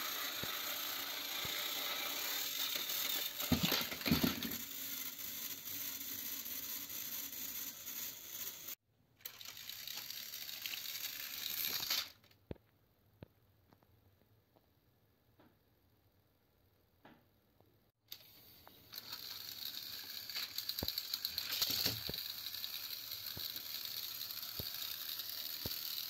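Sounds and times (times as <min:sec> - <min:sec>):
toy train motor whirring: 0:00.0 - 0:12.3, 0:18.1 - 0:26.0
toy trains clattering falling: 0:00.0 - 0:12.4, 0:18.1 - 0:26.0.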